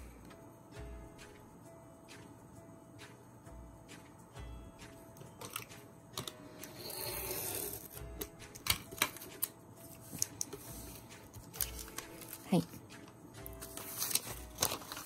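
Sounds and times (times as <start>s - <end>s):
soft background music: 0.0s - 15.0s
paper being handled and cut: 8.6s - 12.7s, 13.5s - 15.0s.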